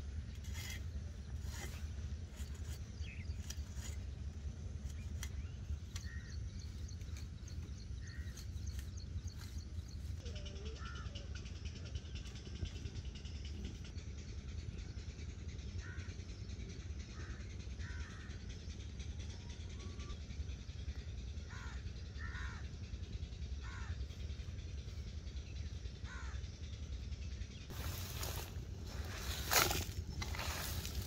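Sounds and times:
steady low rumble: 0:00.0 - 0:31.0
crows cawing: 0:15.8 - 0:16.0, 0:17.8 - 0:18.3, 0:21.5 - 0:22.6, 0:23.6 - 0:24.0, 0:26.1 - 0:26.4.

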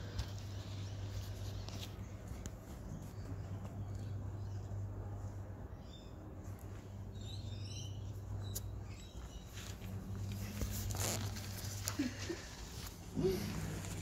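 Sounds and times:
steady low hum: 0:00.0 - 0:14.0
rustling: 0:09.4 - 0:14.0.

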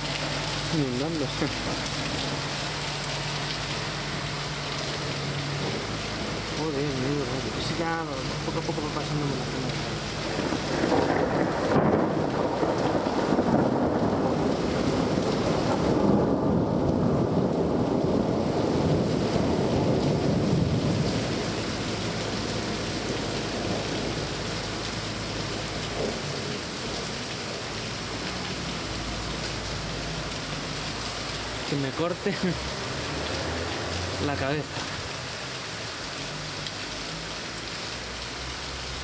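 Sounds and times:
heavy rain: 0:00.0 - 0:39.0
thunder rumble: 0:07.4 - 0:27.1.

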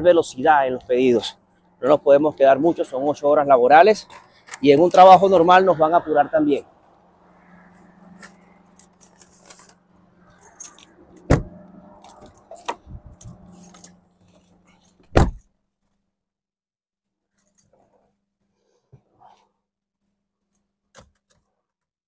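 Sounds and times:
car engine hum: 0:06.8 - 0:14.4
keys jangling: 0:08.2 - 0:15.5, 0:17.4 - 0:18.1
heavy thumps: 0:11.2 - 0:11.6, 0:15.1 - 0:15.5.

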